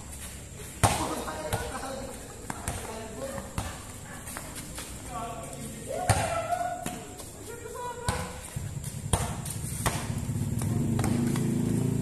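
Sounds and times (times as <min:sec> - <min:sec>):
ball bouncing on concrete: 0:00.1 - 0:12.0
vehicle engine droning: 0:08.6 - 0:12.0.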